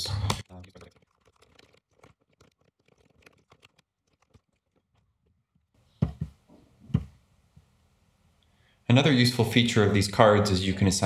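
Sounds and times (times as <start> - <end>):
typing on computer keyboard: 0.3 - 4.7.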